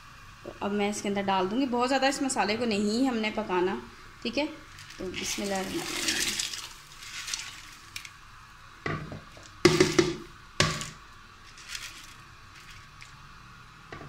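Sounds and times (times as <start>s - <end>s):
low simmer: 3.1s - 14.0s
lentils splashing into liquid: 4.6s - 8.3s, 9.3s - 13.5s.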